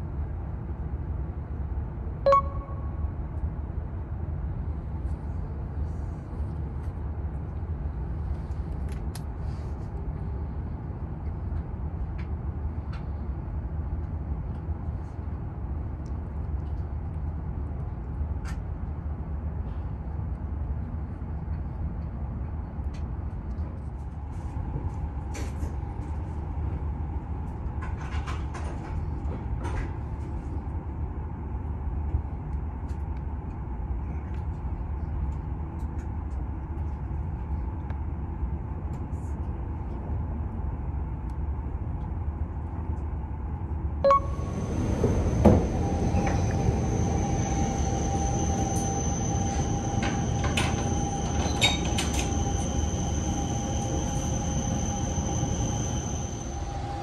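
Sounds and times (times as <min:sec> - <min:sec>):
train rumbling: 0:39.7 - 0:57.0.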